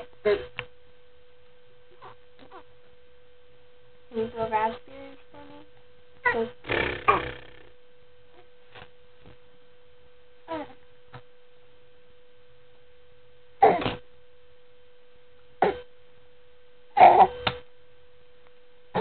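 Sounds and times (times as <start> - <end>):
baby grunting: 0.0 - 0.5, 4.9 - 7.7, 10.5 - 10.8, 13.6 - 14.0, 15.6 - 15.9, 17.0 - 17.4
faint hum: 0.0 - 19.0.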